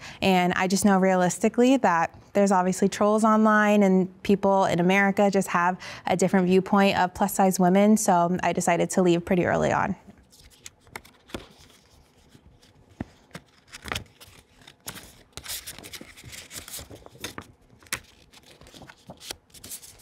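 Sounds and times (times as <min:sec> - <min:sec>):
paper envelope rustling: 0:10.2 - 0:20.0.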